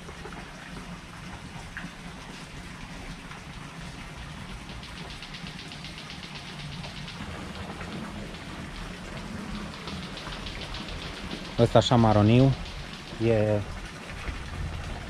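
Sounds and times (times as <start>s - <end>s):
steady rain-like hiss: 0.8s - 15.0s.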